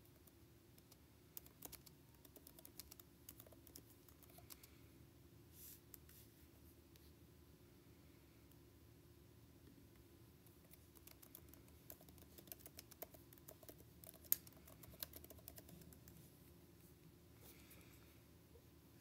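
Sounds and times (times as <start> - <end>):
computer keyboard typing: 0.0 - 4.7, 10.7 - 16.2.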